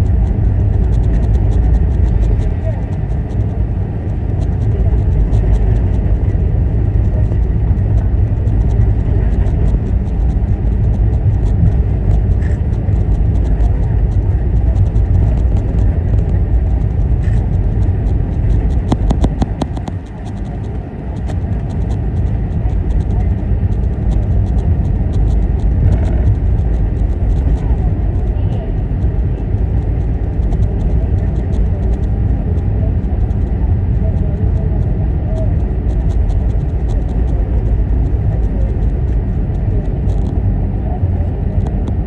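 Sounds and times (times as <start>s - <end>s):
faint rattling ticks: 0.0s - 40.4s, 41.5s - 42.0s
aircraft engines rumbling: 0.0s - 42.0s.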